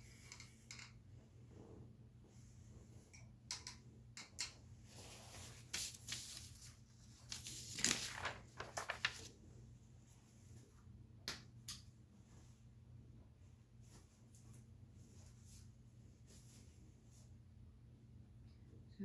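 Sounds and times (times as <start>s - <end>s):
low steady hum: 0.0s - 19.0s
rustling: 4.9s - 9.3s.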